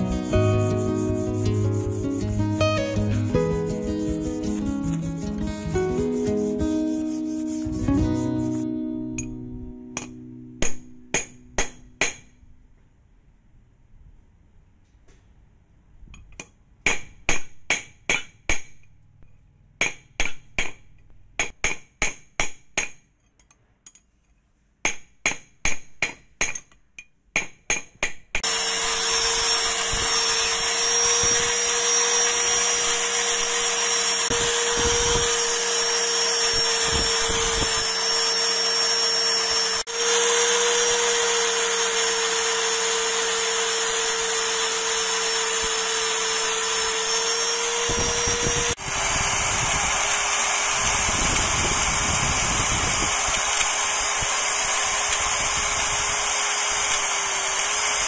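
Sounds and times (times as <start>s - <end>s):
angle grinder grinding: 0.0s - 8.7s, 28.4s - 58.0s
hammer striking metal: 9.1s - 12.4s, 16.3s - 18.9s, 19.8s - 23.1s.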